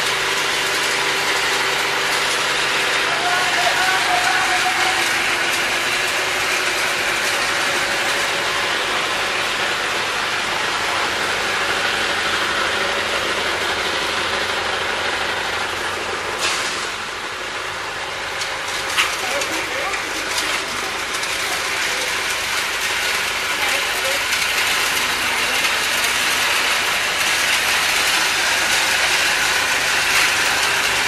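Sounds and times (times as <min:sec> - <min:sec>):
nut cracking machine rattling: 0:00.1 - 0:08.5, 0:18.2 - 0:31.0.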